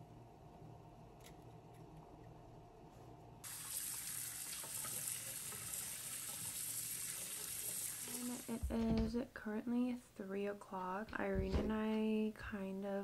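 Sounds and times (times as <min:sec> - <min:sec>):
tap water pouring into strainer: 0:03.4 - 0:08.6.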